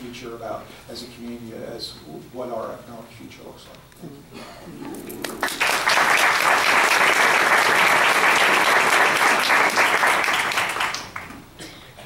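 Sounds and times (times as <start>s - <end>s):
audience applause: 5.2s - 11.4s.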